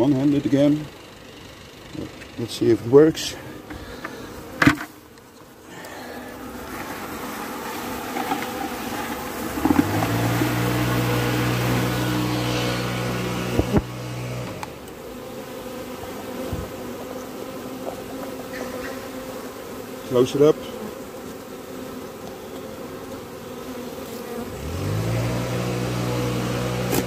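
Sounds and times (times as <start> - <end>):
bees buzzing: 1.0 - 27.0
loud steady low hum: 9.6 - 14.8.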